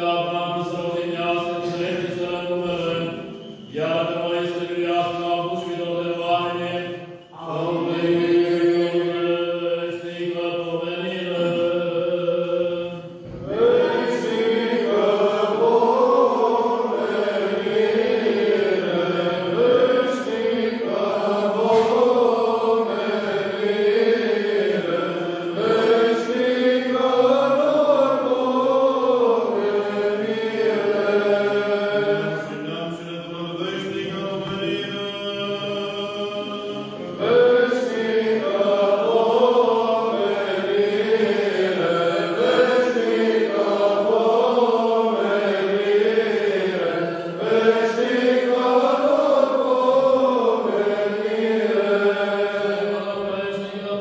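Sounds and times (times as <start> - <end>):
voices chanting liturgy: 0.0 - 54.0.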